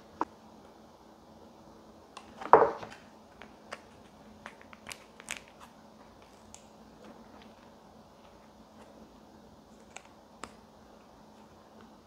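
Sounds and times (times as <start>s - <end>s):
plastic sachet crinkling: 3.8s - 6.7s.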